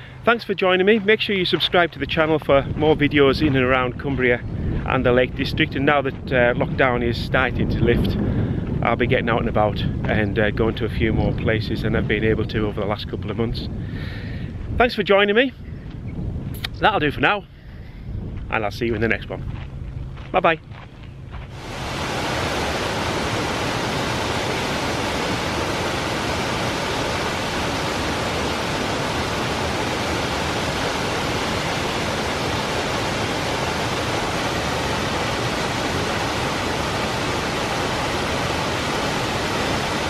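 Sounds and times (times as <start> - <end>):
waterfall rushing: 21.5 - 40.0.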